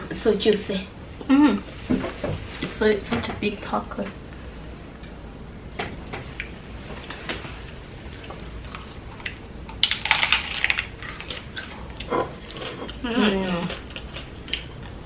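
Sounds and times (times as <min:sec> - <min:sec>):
crunchy tacos being chewed: 0:06.2 - 0:15.0.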